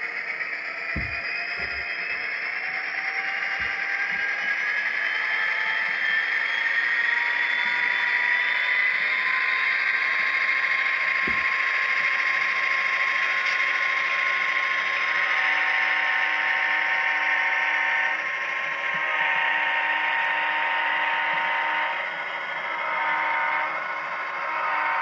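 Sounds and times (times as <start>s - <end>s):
diesel locomotive engine through small speaker: 0.0s - 25.0s
soft knock: 1.0s - 1.8s, 11.3s - 11.5s.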